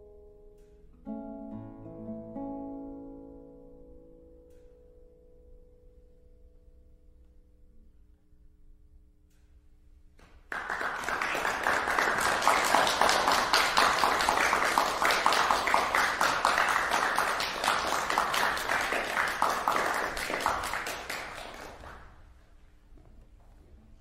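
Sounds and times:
audience applauding: 10.5 - 22.2.

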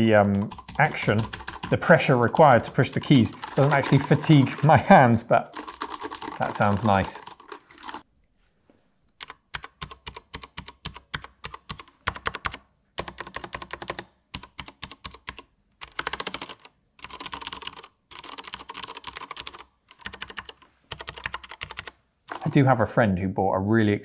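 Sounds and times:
mechanical keyboard typing: 0.0 - 8.0, 9.2 - 22.6.

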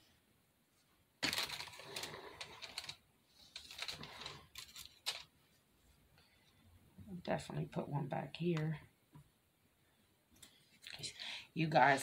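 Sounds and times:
rustling and clicking of decorations: 0.7 - 7.6, 10.2 - 12.0.

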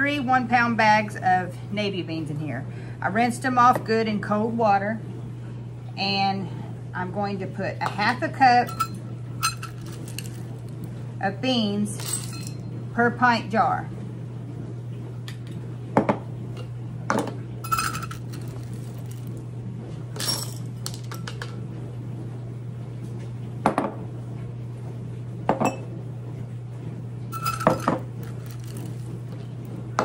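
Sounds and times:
low hum: 8.0 - 13.0
metal clinking on glass: 8.6 - 10.5, 12.0 - 12.6, 17.6 - 19.3, 20.2 - 21.4, 27.3 - 29.1
dry beans rattling: 8.6 - 10.7, 11.9 - 12.6, 17.7 - 19.4, 27.4 - 29.4.

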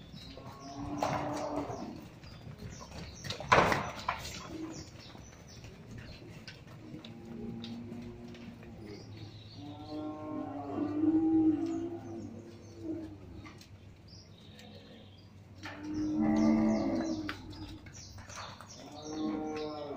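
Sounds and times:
cattle mooing: 0.4 - 2.1, 7.0 - 13.2, 15.6 - 17.7, 18.9 - 19.9.

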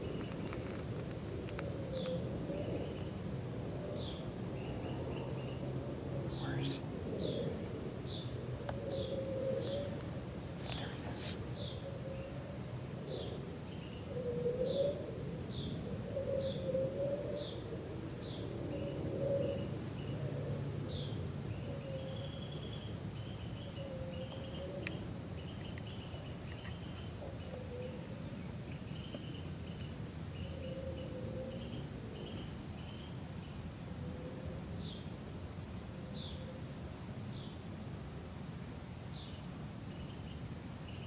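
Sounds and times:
small birds chirping: 0.0 - 0.8, 6.3 - 12.4, 20.9 - 33.6.

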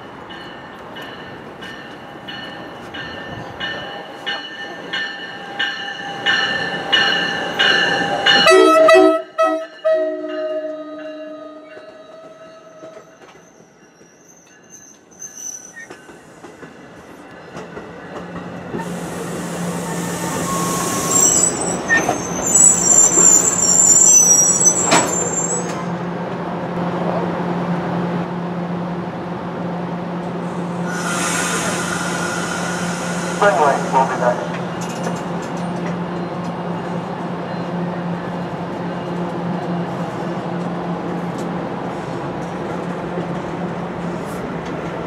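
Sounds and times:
train bell ringing: 0.0 - 15.0
train coaches rolling past: 0.0 - 45.0
train horn blast: 8.4 - 12.6
high-pitched brake squeal: 12.0 - 16.0, 18.8 - 25.9, 30.9 - 33.5.

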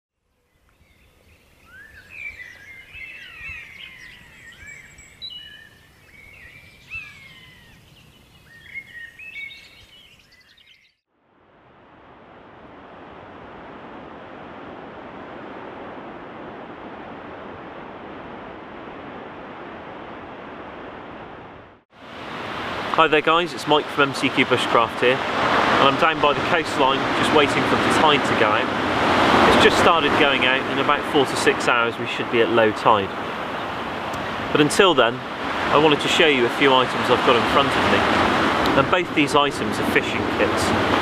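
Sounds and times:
songbirds chirping: 0.2 - 11.0, 23.2 - 40.6
sea surf rushing: 11.4 - 41.0.

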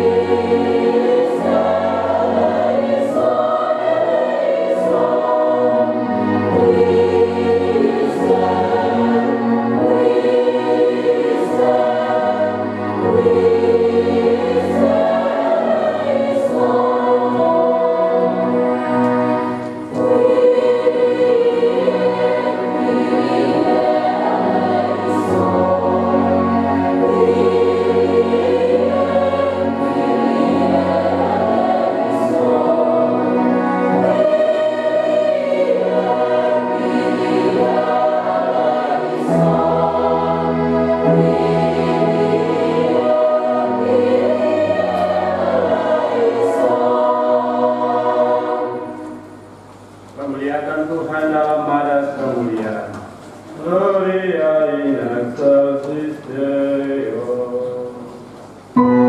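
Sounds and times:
choir singing: 0.0 - 49.7, 54.0 - 59.0.

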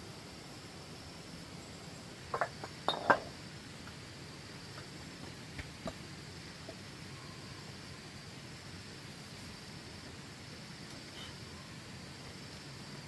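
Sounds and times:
steady low hiss: 0.0 - 13.0
flat stones clinking together: 2.3 - 3.3.

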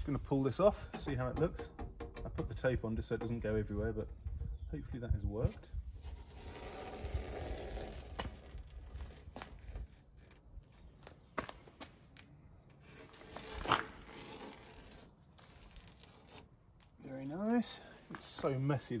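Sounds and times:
masking tape ripping off: 6.1 - 11.3, 12.7 - 17.0.

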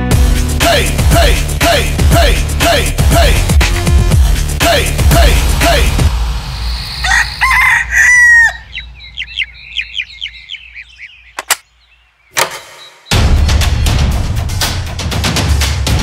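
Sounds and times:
background music: 0.0 - 8.6, 12.4 - 16.0
cartoon rooster crowing: 6.9 - 8.8.

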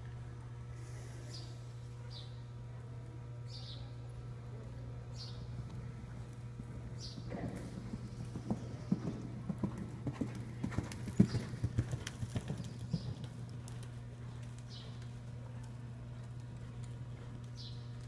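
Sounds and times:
horse hoofbeats on dirt: 6.6 - 18.0.

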